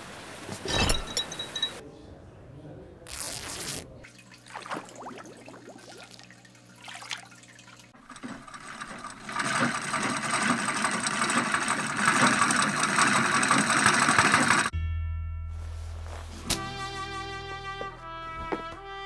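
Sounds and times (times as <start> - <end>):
fish tank water trickling: 4.1 - 8.8
treadle sewing machine running: 8.0 - 14.7.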